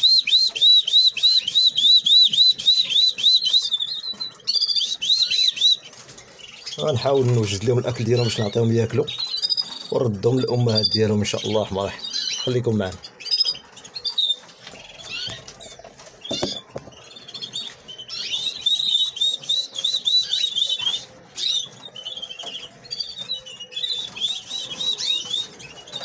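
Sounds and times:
nestlings begging chirps: 0.0 - 26.0
light knocks: 16.3 - 17.0.

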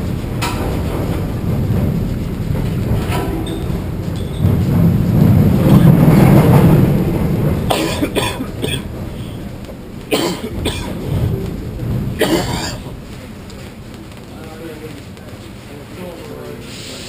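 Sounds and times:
roller coaster train rumbling: 0.0 - 16.7
man coughing: 7.7 - 8.9, 10.1 - 11.2, 12.2 - 12.9.

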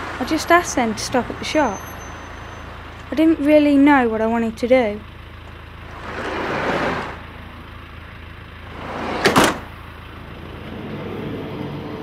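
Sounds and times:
van engine running: 0.0 - 12.0
sliding door rushing: 5.9 - 7.3, 8.6 - 9.7
door slamming: 8.8 - 9.7.

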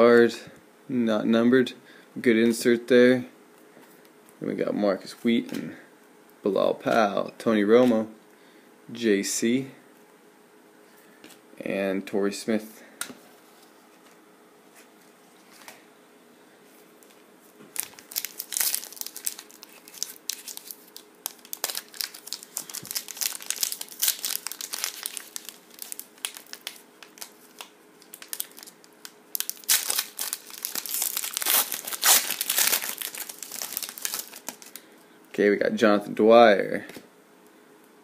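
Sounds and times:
foil wrapper crinkling and tearing: 17.7 - 34.8.

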